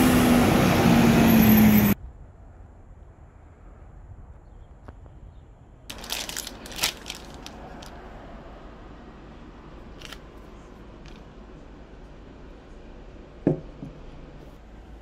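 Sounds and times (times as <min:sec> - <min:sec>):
plastic bag crinkling: 0:05.9 - 0:07.9.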